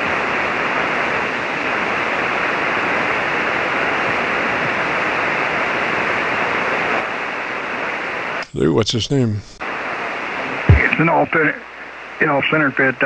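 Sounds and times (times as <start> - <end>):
shortwave radio noise hiss: 0.0 - 13.0.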